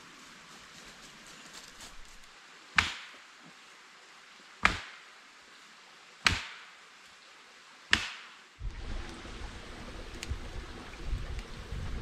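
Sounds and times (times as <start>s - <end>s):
chopping strikes on wood: 2.8s - 3.2s, 4.6s - 5.1s, 6.2s - 6.7s, 7.9s - 8.4s.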